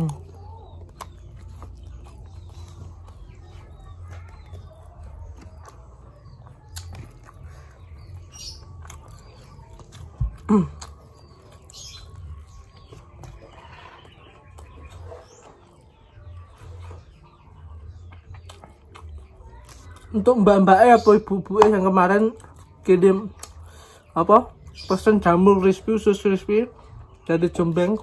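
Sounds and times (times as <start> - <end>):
chewing: 0.0 - 21.0, 21.6 - 25.1
faint bird chirps: 0.0 - 21.3.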